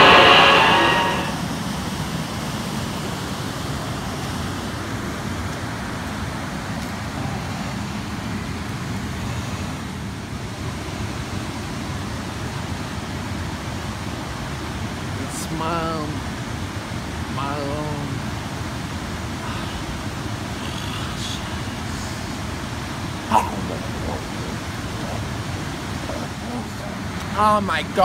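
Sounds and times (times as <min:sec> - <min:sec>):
loud held pitched tone: 0:00.0 - 0:01.5
steady rushing background noise: 0:00.0 - 0:28.0.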